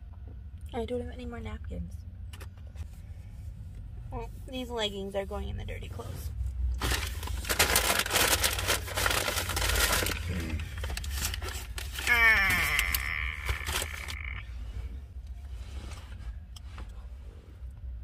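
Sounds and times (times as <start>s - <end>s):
food packaging rustling: 6.8s - 12.1s, 12.8s - 14.2s.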